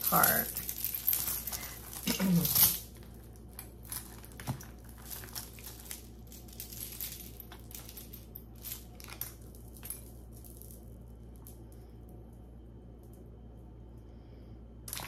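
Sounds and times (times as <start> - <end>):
metal jewelry clinking: 0.0 - 11.7.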